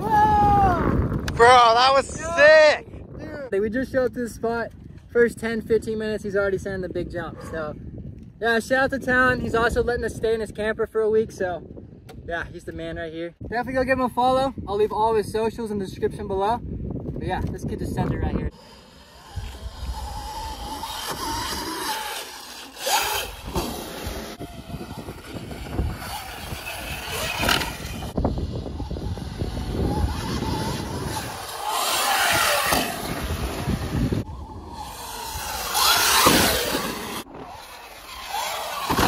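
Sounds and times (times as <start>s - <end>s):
electric dirt bike motors whining: 18.4s - 39.0s.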